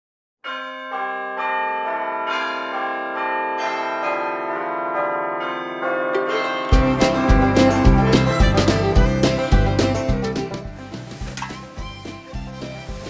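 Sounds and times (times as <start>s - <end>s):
bells ringing: 0.4s - 10.6s
loud music with a beat: 6.7s - 10.9s.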